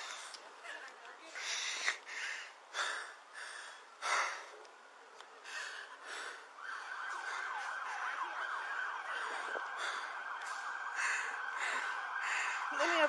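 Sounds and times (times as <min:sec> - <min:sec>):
emergency siren yelping: 0:05.5 - 0:13.0.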